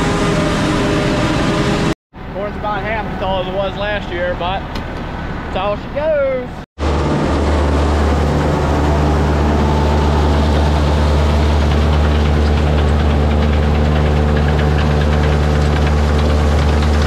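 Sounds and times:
machine hum: 0.0s - 3.3s, 6.8s - 17.0s.

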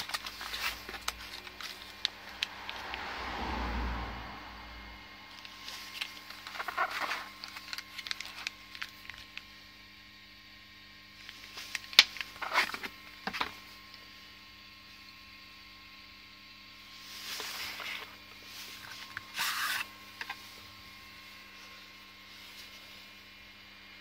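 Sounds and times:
plastic bags crinkling: 0.0s - 2.9s, 5.3s - 9.4s, 11.2s - 13.5s
electrical hum: 0.0s - 24.0s.

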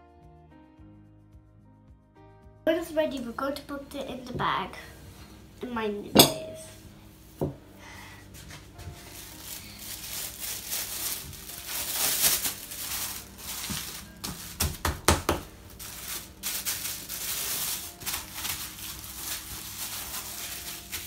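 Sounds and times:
plastic bag crinkling: 9.0s - 14.8s, 15.5s - 21.0s.

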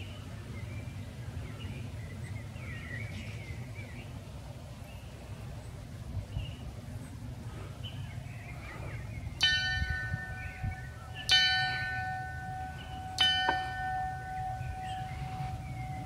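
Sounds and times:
small bell ringing: 9.4s - 16.0s.

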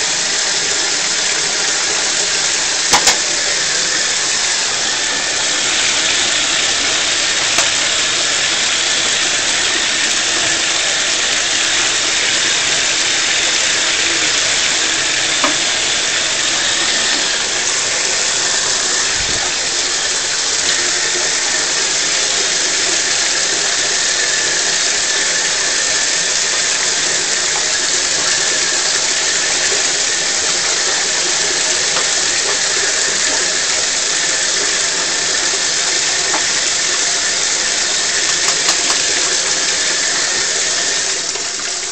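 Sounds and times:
water running into bathtub: 0.0s - 41.9s.

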